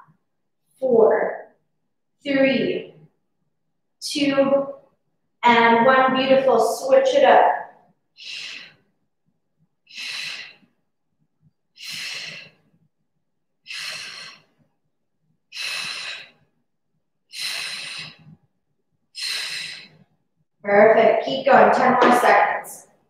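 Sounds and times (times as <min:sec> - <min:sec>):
woman exhaling forcefully: 0:11.8 - 0:12.5, 0:13.7 - 0:14.4, 0:19.2 - 0:19.9.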